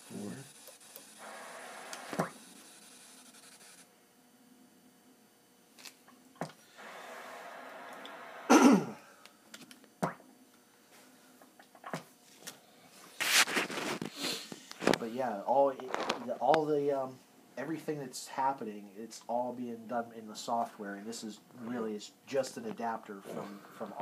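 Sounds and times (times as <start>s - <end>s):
radio static hiss: 0.0s - 3.8s, 6.4s - 9.2s, 13.1s - 24.0s.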